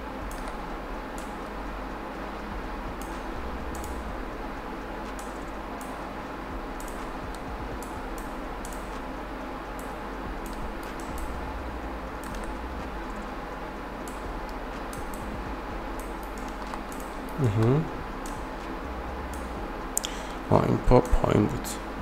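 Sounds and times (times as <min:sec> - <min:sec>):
background hiss: 0:00.0 - 0:22.0
keyboard and mouse clicks: 0:00.3 - 0:01.3, 0:06.8 - 0:09.0, 0:09.8 - 0:11.4, 0:12.2 - 0:13.3, 0:16.0 - 0:18.4, 0:19.3 - 0:20.2.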